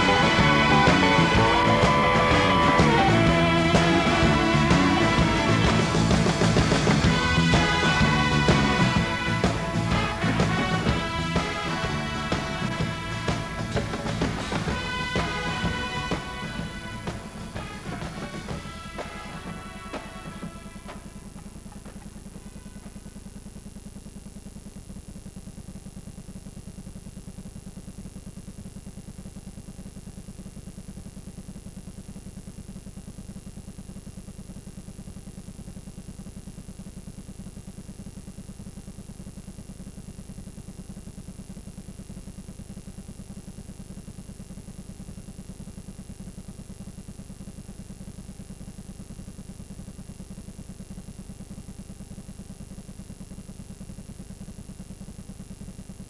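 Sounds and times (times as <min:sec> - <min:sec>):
thin high whine: 0:00.0 - 0:23.6
videotape low buzz with hiss: 0:00.0 - 0:56.0.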